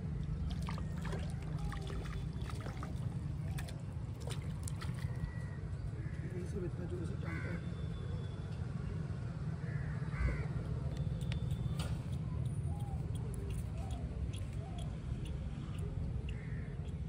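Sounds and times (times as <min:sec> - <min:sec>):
crows cawing: 0:09.6 - 0:10.5, 0:16.3 - 0:16.7.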